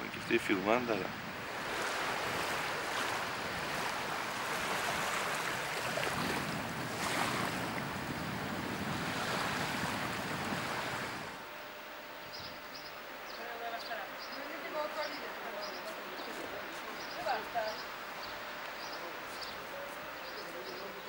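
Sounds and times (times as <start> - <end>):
wind buffeting microphone: 0.2 - 11.4
small waves breaking on shore: 0.7 - 11.4.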